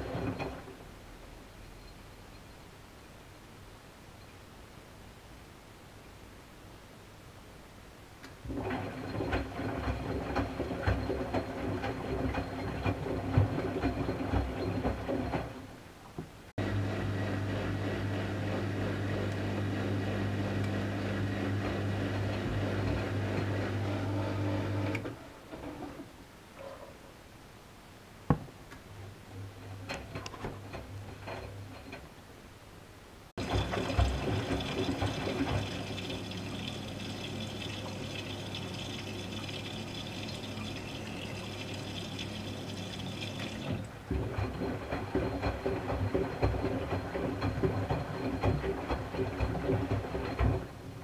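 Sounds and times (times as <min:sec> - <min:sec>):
water rushing into washing machine: 0:00.0 - 0:00.8, 0:08.4 - 0:15.7, 0:33.4 - 0:51.0
water sloshing in drum: 0:08.4 - 0:15.7, 0:33.4 - 0:51.0.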